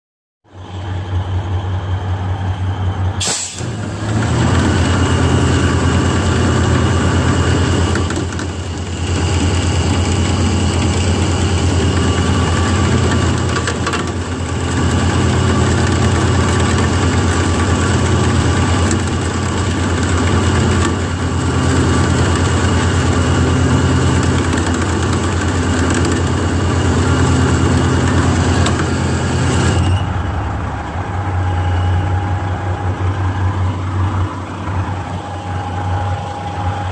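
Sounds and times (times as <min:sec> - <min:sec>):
diesel truck engine running: 0:00.5 - 0:36.9.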